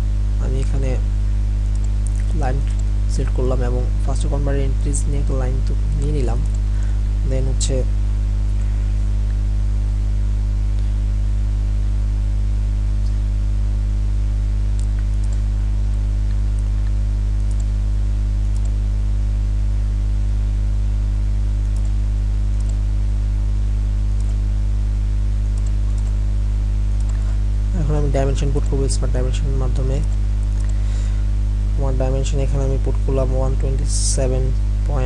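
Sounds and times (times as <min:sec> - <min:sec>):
electrical mains hum: 0:00.0 - 0:35.0
computer mouse clicks: 0:14.8 - 0:15.5, 0:16.5 - 0:17.7, 0:18.5 - 0:18.8, 0:22.6 - 0:22.8, 0:25.5 - 0:26.2.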